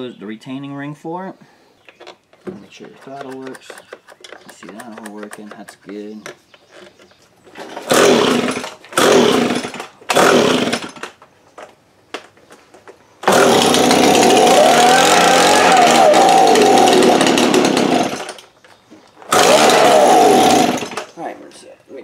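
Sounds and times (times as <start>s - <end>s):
leaf blower engine pull-starting: 7.6s - 11.2s, 13.2s - 18.6s, 19.2s - 21.2s.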